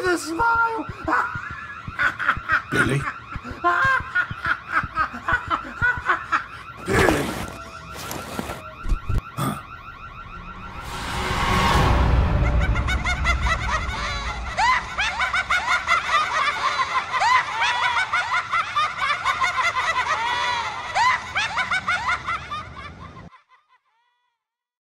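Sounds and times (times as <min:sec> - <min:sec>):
high-pitched cackling laughter: 0:12.5 - 0:23.9.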